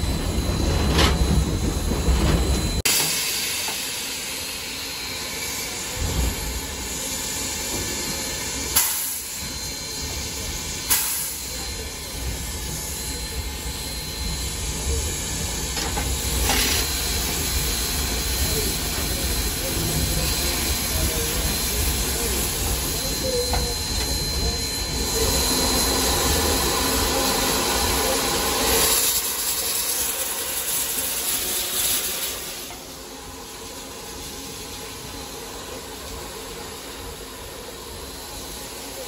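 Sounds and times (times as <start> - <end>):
locomotive running rumble: 0.0 - 2.9
steam hissing: 2.8 - 39.0.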